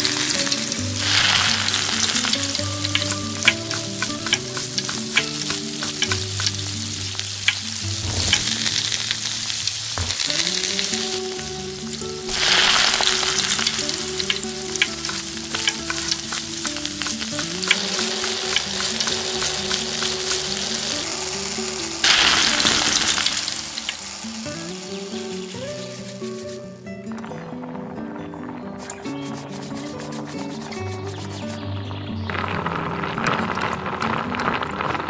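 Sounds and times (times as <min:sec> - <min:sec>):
steady hiss: 0:00.0 - 0:31.6
soft background melody: 0:00.0 - 0:34.1
egg breaking: 0:07.5 - 0:11.2
scratchy noise burst: 0:07.8 - 0:11.2, 0:27.5 - 0:31.6.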